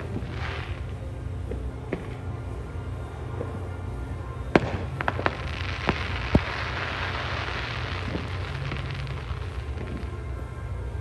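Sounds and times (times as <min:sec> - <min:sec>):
fireworks crackling: 0:00.0 - 0:02.3, 0:04.3 - 0:10.6
fireworks pops and bangs: 0:00.0 - 0:02.3, 0:04.5 - 0:10.3.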